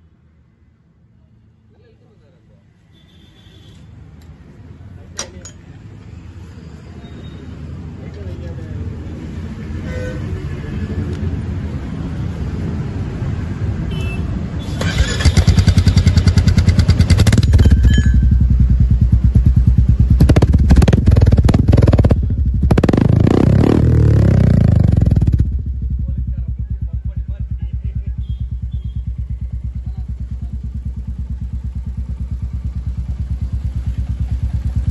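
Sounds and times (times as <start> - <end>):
motorcycle engine idling: 14.8 - 22.9, 24.6 - 34.9.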